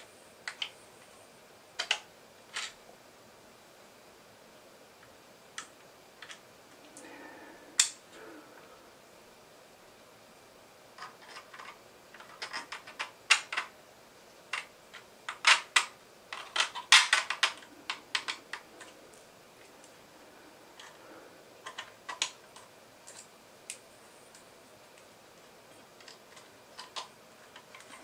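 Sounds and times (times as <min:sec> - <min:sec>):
plastic parts clicking together: 0:01.8 - 0:02.8, 0:11.0 - 0:13.7, 0:14.5 - 0:19.0, 0:21.6 - 0:24.4, 0:25.9 - 0:28.0.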